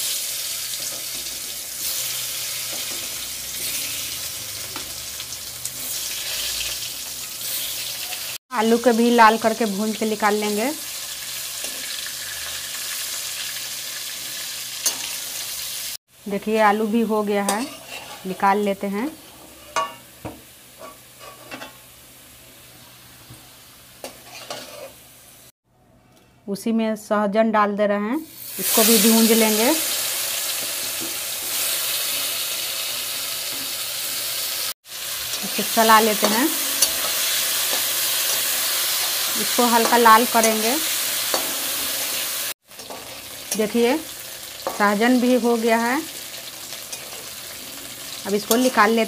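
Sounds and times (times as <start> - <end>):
potatoes sizzling in hot oil: 0.0 - 25.5, 28.3 - 49.0
spatula scraping a pan: 17.5 - 18.4, 19.2 - 20.1, 20.8 - 21.8, 24.0 - 25.0.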